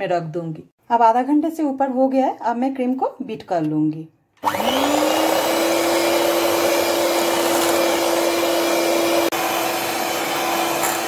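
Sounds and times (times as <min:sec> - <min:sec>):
beaters whipping cream in a bowl: 0:04.4 - 0:11.0
hand mixer motor whine: 0:04.4 - 0:11.0.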